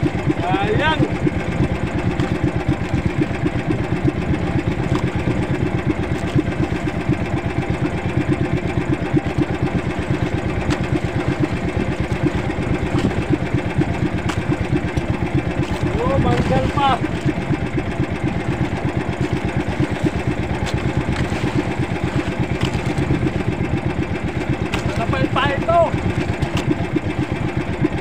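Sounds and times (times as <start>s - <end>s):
small boat engine running: 0.0s - 28.0s.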